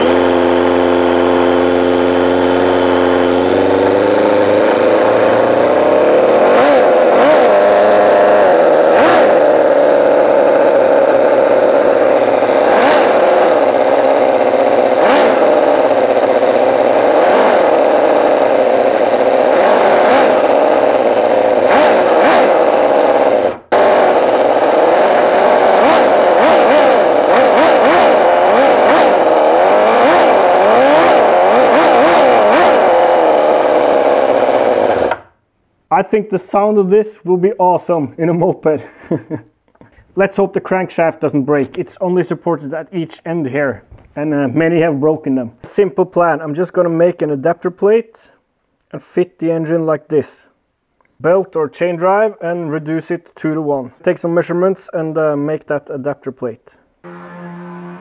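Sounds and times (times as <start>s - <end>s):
model engine revving: 0.0s - 35.3s.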